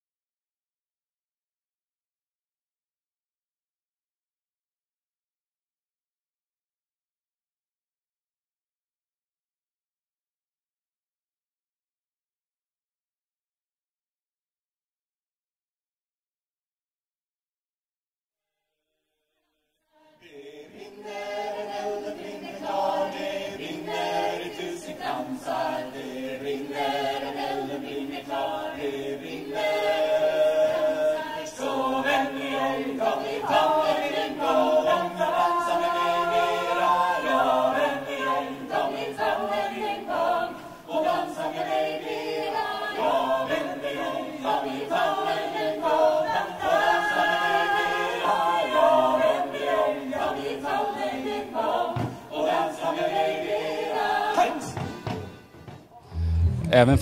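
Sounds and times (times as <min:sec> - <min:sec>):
choir singing a cappella: 0:19.9 - 0:57.0.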